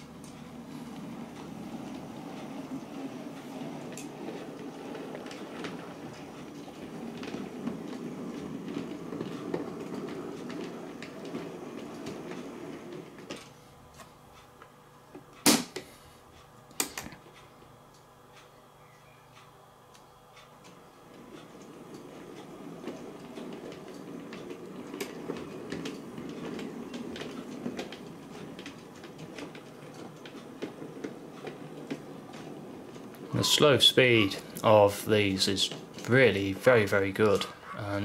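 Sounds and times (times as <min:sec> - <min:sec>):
model train rumbling on track: 0:00.0 - 0:13.2, 0:21.2 - 0:38.0.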